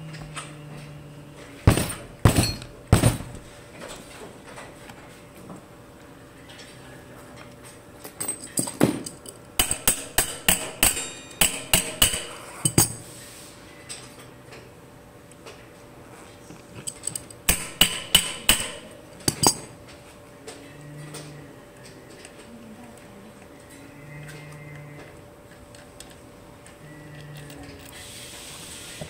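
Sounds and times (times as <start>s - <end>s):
metallic clinks and knocks: 1.7s - 3.4s, 8.2s - 13.0s, 16.8s - 19.8s.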